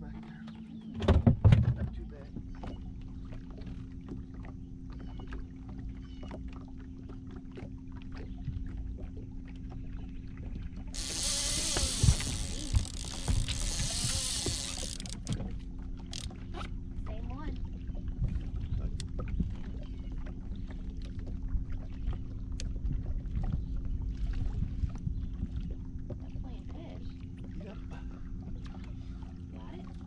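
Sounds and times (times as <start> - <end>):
boat motor humming: 0.0 - 30.0
water splashing against hull: 0.0 - 30.0
faint ticks: 11.0 - 15.4, 16.1 - 16.7.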